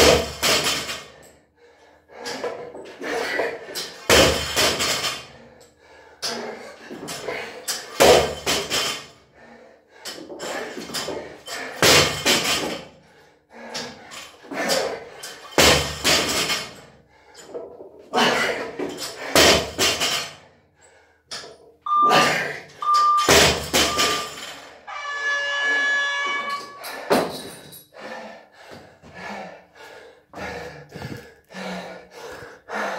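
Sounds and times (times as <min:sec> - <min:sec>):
countdown timer short beeps: 0:21.9 - 0:26.9
timer long buzz: 0:23.8 - 0:26.9
heavy breathing: 0:26.8 - 0:32.9.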